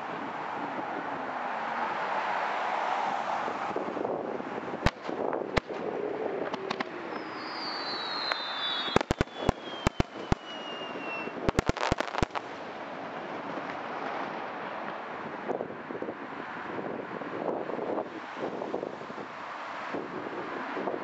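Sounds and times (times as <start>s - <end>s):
firework shells bursting: 4.8s - 5.8s, 6.4s - 12.5s
descending firework whistle: 4.8s - 12.4s.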